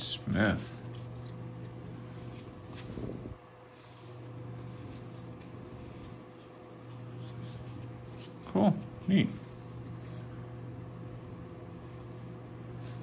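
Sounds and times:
low hum: 0:00.0 - 0:13.0
cards rustling and clicking: 0:00.8 - 0:03.0, 0:03.7 - 0:06.6, 0:07.2 - 0:10.3.

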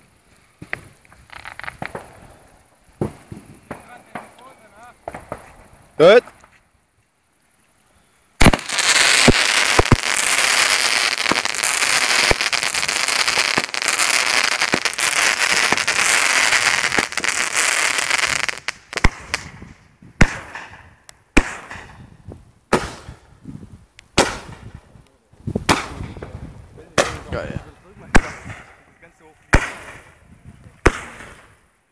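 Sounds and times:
fireworks crackling and hissing: 0:00.0 - 0:31.9
scattered firework pops: 0:00.6 - 0:06.6, 0:08.4 - 0:23.3, 0:24.0 - 0:31.6
firework bang: 0:03.0 - 0:06.3, 0:08.4 - 0:20.8, 0:24.2 - 0:24.7, 0:25.6 - 0:28.9.

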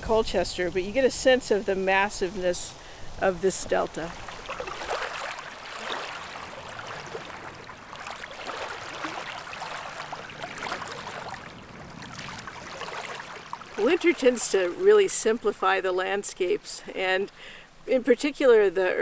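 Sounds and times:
small waves lapping over pebbles: 0:00.9 - 0:14.9.

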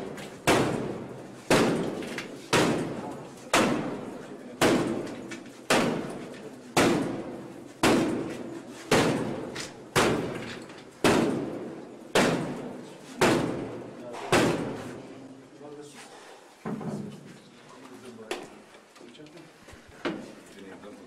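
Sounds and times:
door being battered: 0:04.6 - 0:14.9.

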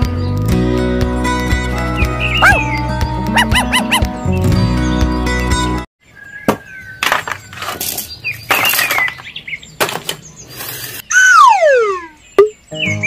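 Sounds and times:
descending whistle: 0:11.1 - 0:12.2.

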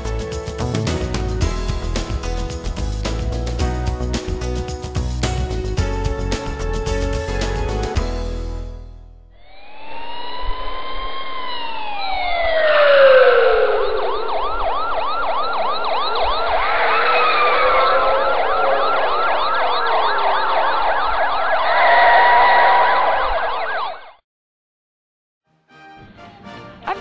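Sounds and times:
police sirens wailing and yelping: 0:09.4 - 0:24.1.

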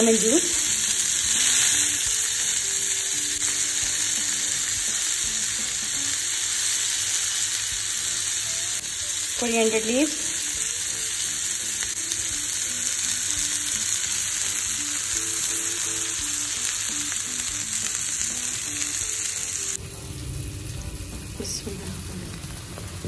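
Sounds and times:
faint background music: 0:00.0 - 0:23.0
food sizzling in oil: 0:00.0 - 0:23.0
low rumble: 0:19.8 - 0:23.0.

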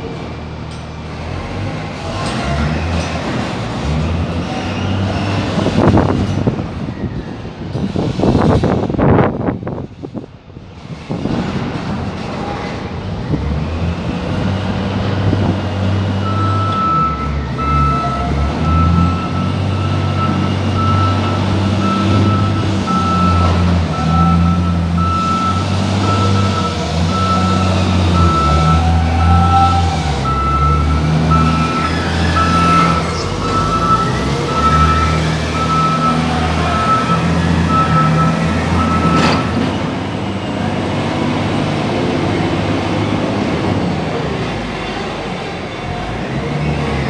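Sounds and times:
diesel engine running: 0:10.6 - 0:47.0
reversing alarm beeping: 0:16.2 - 0:39.6.

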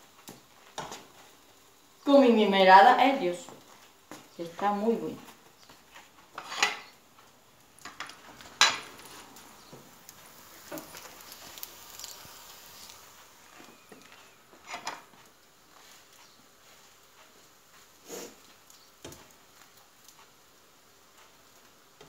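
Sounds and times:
spatula scraping frying pan: 0:05.9 - 0:07.0.

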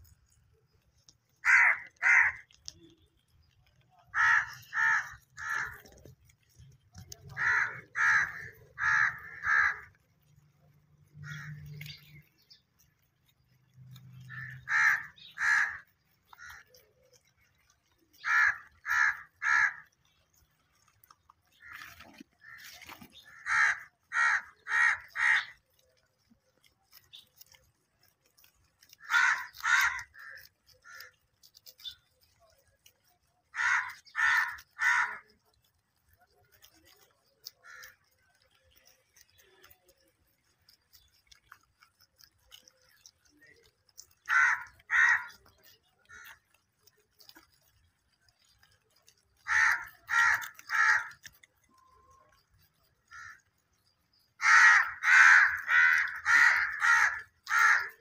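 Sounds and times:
bird cawing harshly: 0:01.4 - 0:02.4, 0:04.2 - 0:05.8, 0:07.4 - 0:09.9, 0:14.3 - 0:15.8, 0:18.2 - 0:19.8, 0:23.3 - 0:25.5, 0:29.0 - 0:31.1, 0:33.6 - 0:35.2, 0:44.3 - 0:45.3, 0:49.5 - 0:51.1, 0:53.1 - 0:53.4, 0:54.4 - 0:58.0.

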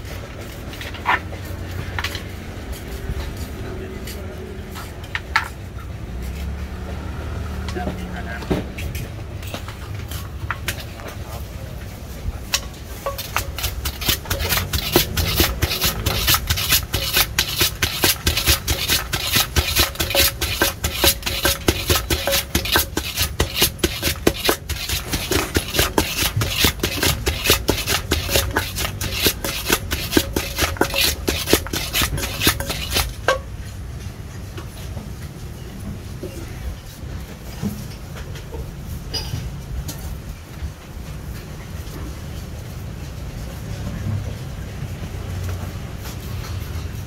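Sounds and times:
spoon scraping mortar: 0:12.9 - 0:33.5
wooden pestle pounding in mortar: 0:13.0 - 0:33.5.

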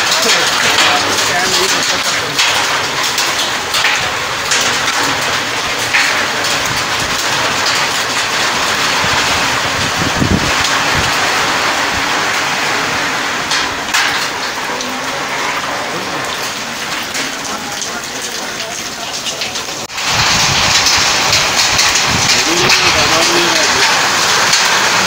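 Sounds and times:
hailstones ticking: 0:00.0 - 0:25.0
heavy rain hissing: 0:00.0 - 0:25.0.

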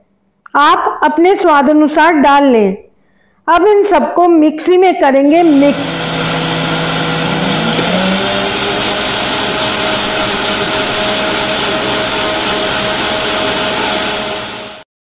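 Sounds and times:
mixer grinder motor whirring: 0:05.3 - 0:14.9.

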